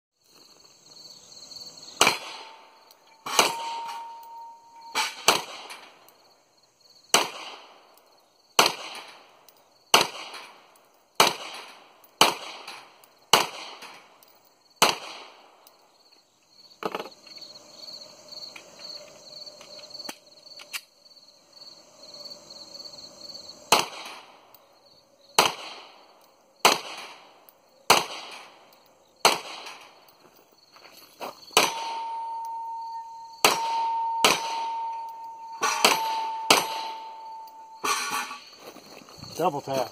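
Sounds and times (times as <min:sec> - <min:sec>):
pistol shots: 0:02.0 - 0:06.0, 0:07.1 - 0:07.8, 0:08.6 - 0:09.3, 0:09.9 - 0:14.1, 0:14.8 - 0:15.6, 0:23.7 - 0:24.4, 0:25.4 - 0:28.6, 0:29.2 - 0:30.0, 0:31.6 - 0:32.6, 0:33.4 - 0:38.2
bullets clanging on steel targets: 0:02.0 - 0:06.2, 0:08.8 - 0:14.5, 0:31.5 - 0:38.6.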